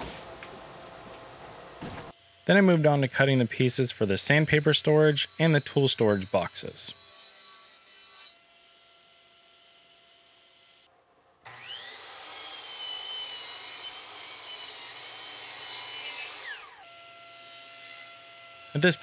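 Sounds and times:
miter saw cutting wood: 2.1s - 8.9s, 11.5s - 19.0s.

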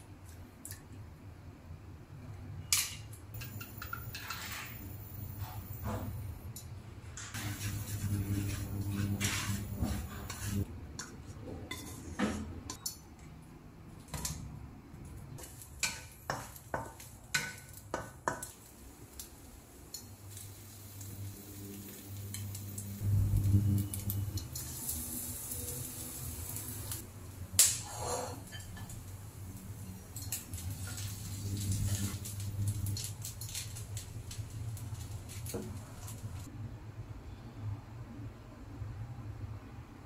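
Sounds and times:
utensils scraping a wok: 3.5s - 4.8s, 7.3s - 10.7s, 27.8s - 29.0s, 29.9s - 33.8s
meat frying in a wok: 7.3s - 10.7s, 15.4s - 36.5s.

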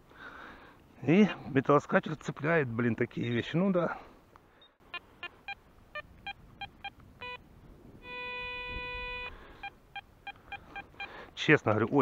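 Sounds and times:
metal detector beeping: 4.6s - 7.4s, 8.0s - 11.2s
metal detector steady tone: 4.6s - 7.4s, 8.0s - 11.2s.

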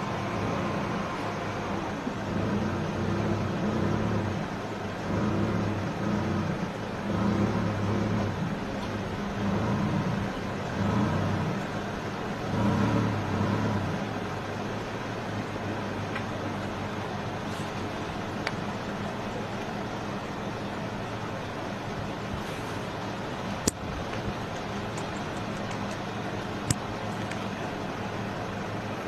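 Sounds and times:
vehicle engine idling: 0.0s - 29.0s.

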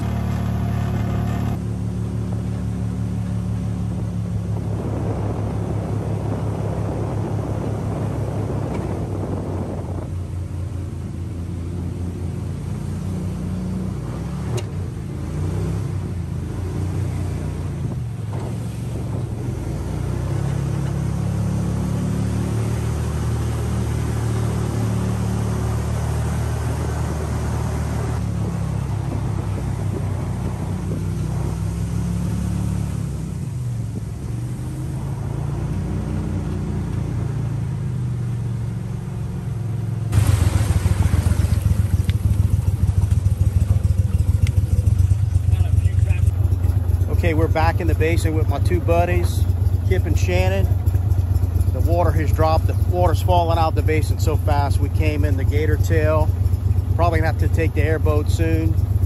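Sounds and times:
boat motor running: 0.0s - 59.0s
rushing water: 39.6s - 44.2s.

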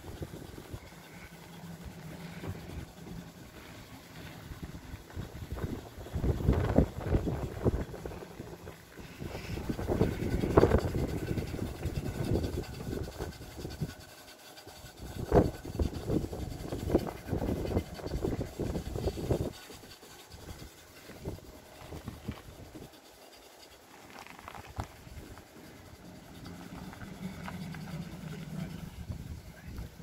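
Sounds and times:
trailer rumbling up ramp: 0.0s - 14.0s, 24.2s - 30.0s.

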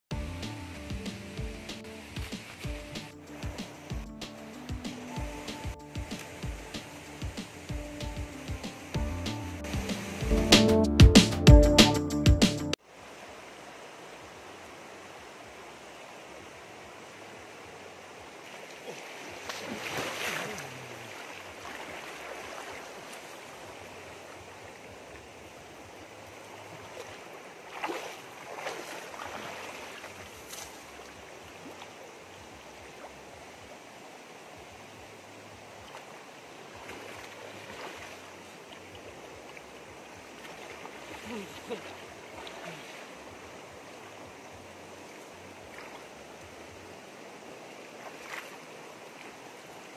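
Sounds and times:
stream running over rocks: 0.1s - 10.4s, 12.8s - 49.9s
splashes of person wading: 18.4s - 23.8s, 26.4s - 32.1s, 35.8s - 43.4s, 45.6s - 46.3s, 47.8s - 49.9s.

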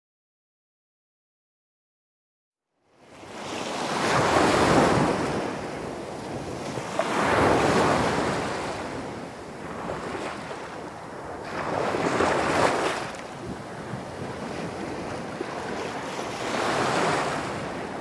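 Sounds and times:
ocean surf breaking: 3.2s - 18.0s.

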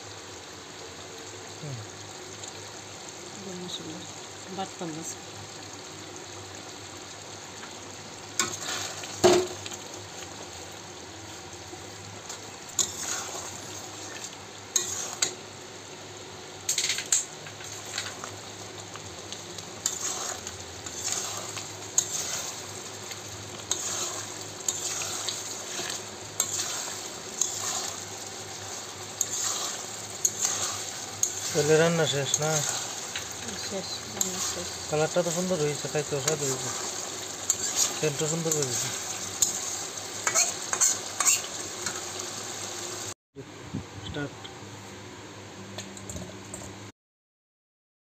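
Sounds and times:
curry sizzling in oil: 0.0s - 43.2s
metal spatula scraping wok: 12.8s - 15.4s, 19.8s - 22.8s, 23.5s - 42.0s.

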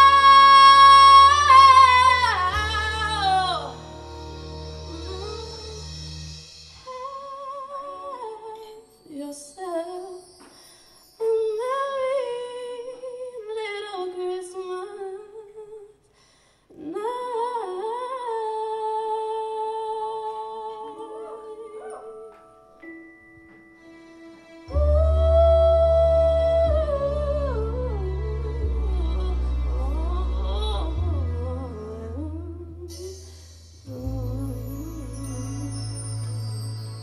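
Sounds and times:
woman singing into a microphone: 0.0s - 3.8s, 6.8s - 10.4s, 11.2s - 16.0s, 16.7s - 22.4s, 24.7s - 33.2s, 33.9s - 36.2s
low backing sound: 0.0s - 8.8s, 22.6s - 37.0s.

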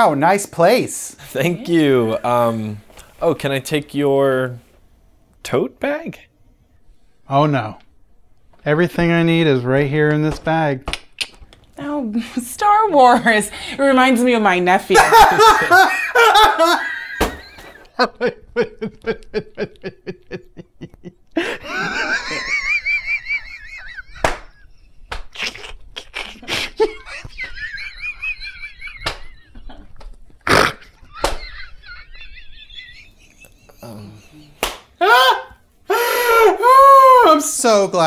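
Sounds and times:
man laughing hard: 15.0s - 24.9s, 25.7s - 29.9s, 30.7s - 36.8s.

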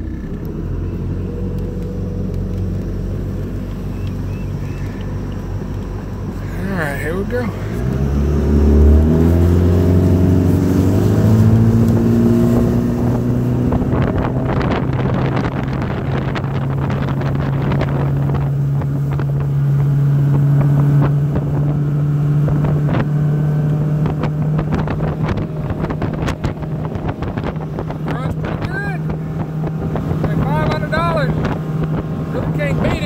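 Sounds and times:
boat engine running: 0.0s - 33.0s
wind buffeting microphone: 0.7s - 33.0s.

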